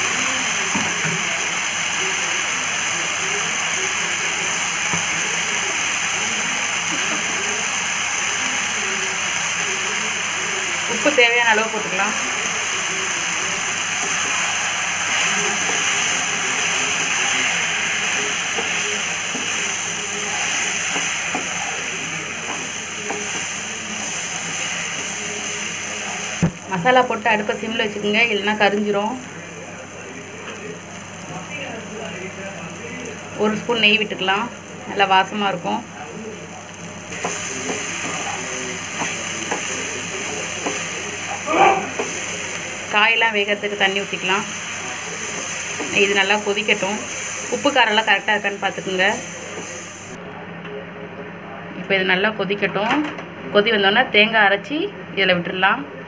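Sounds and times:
vegetables sizzling in oil: 0.0 - 50.2
wooden spatula tapping and scraping: 40.6 - 40.9.

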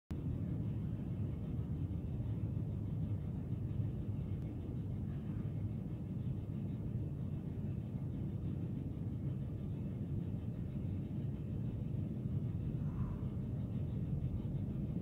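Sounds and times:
low room rumble: 0.1 - 15.0.

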